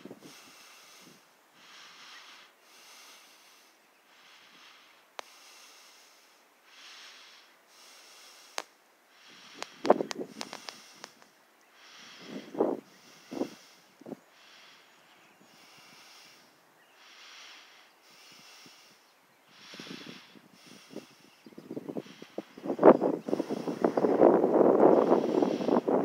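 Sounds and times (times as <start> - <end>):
soft breathing: 0.0 - 26.0
sharp clicks: 8.5 - 8.8, 9.5 - 11.7.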